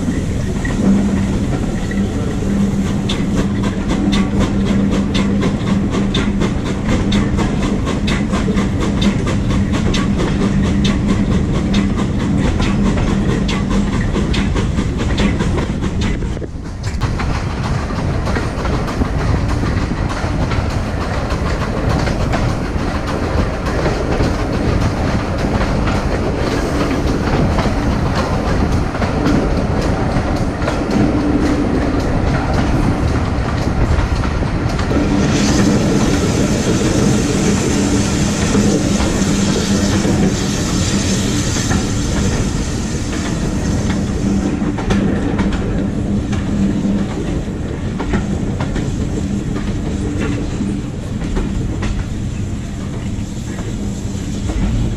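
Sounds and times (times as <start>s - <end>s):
clickety-clack over rail joints: 0.0s - 54.9s
train wheels rumbling on rails: 0.0s - 54.9s.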